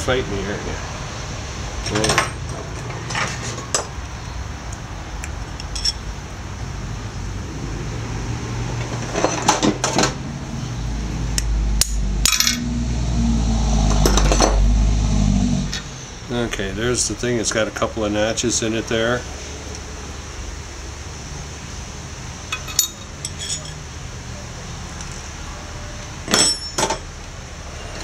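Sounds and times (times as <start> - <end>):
metal parts clinking: 5.6 - 6.0, 11.8 - 12.6, 22.5 - 23.8, 26.3 - 27.0
low steady hum: 10.4 - 18.4.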